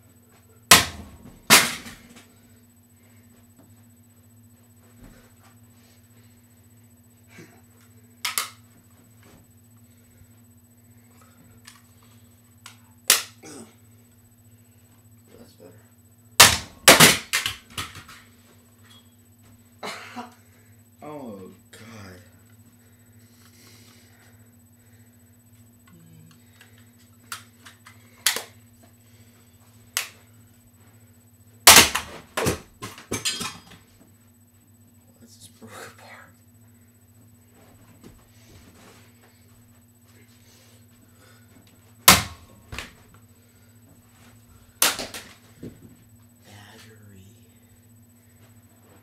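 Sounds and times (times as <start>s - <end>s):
electric fan humming: 0.0s - 49.0s
rapid clatter of smacks: 0.7s - 2.3s, 16.4s - 18.3s, 31.7s - 33.8s, 44.8s - 46.0s.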